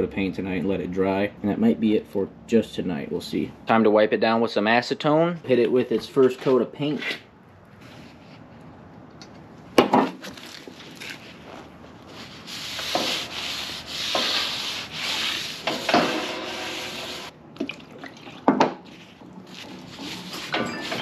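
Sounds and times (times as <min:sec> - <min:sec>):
towel wiping over steel: 0:11.2 - 0:17.3, 0:18.8 - 0:21.0.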